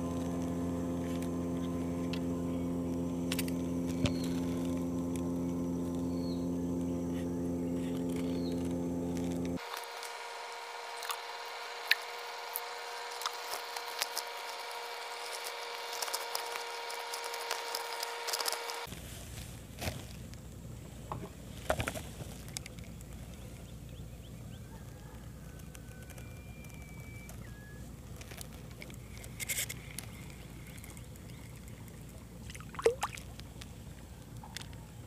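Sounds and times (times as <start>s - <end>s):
steady hum: 0.0s - 21.4s.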